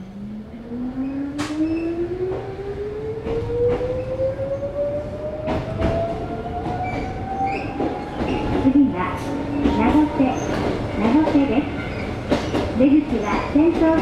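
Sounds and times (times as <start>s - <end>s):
train running rumble: 0.0s - 14.0s
wheel clacks over rail joints: 6.8s - 14.0s.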